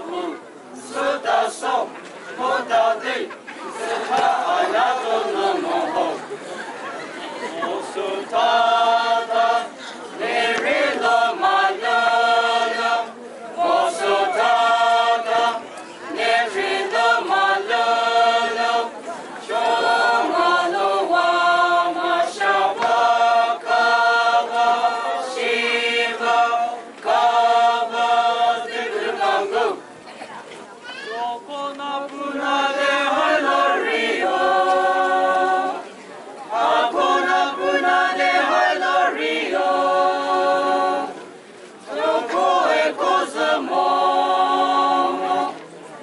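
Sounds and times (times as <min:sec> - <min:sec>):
group singing unaccompanied: 0:00.0 - 0:29.9, 0:31.2 - 0:45.7.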